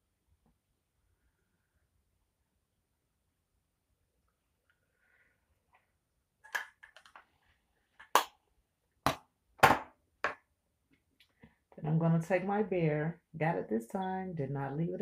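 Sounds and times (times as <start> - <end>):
makeup cases clicking and tapping: 6.5 - 7.2, 8.0 - 8.4, 9.0 - 10.4.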